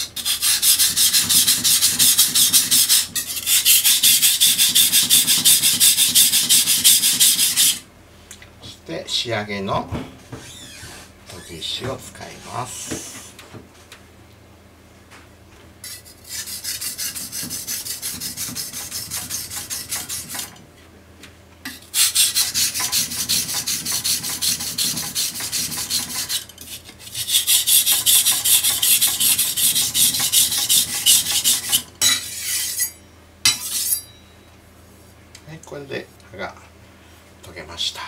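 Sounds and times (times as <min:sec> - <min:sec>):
knife scraping on whetstone: 0:00.0 - 0:07.8, 0:15.8 - 0:20.5, 0:21.8 - 0:34.2.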